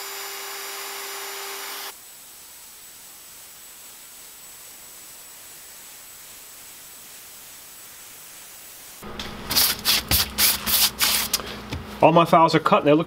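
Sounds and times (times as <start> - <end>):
router spindle whining: 0.0 - 1.9
stiff brush scrubbing: 9.4 - 11.5.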